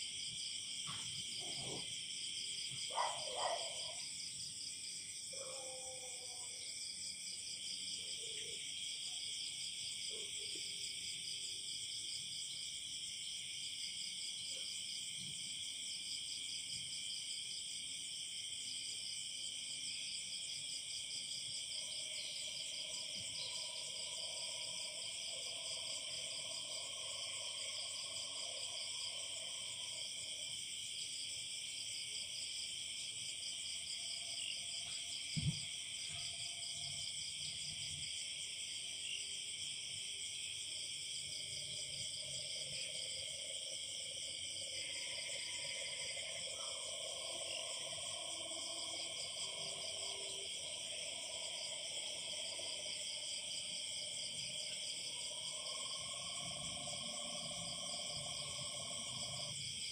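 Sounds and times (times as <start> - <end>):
crickets trilling: 17.0 - 59.9
soft thump: 35.3 - 35.7.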